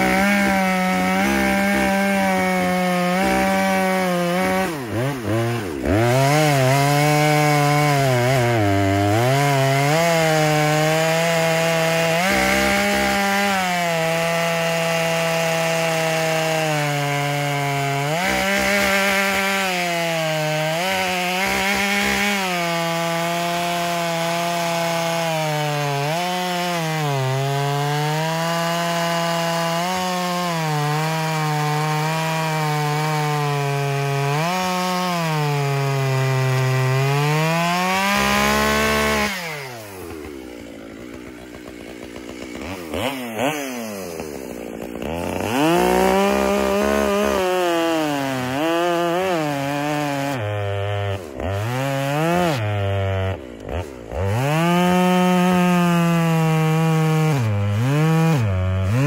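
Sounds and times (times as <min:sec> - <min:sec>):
chainsaw cutting log: 0:00.0 - 0:59.0.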